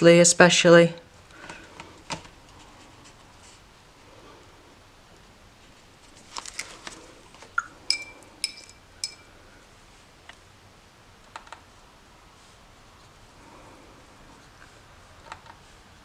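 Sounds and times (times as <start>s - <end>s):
ringing taps on pot: 7.6s - 9.2s.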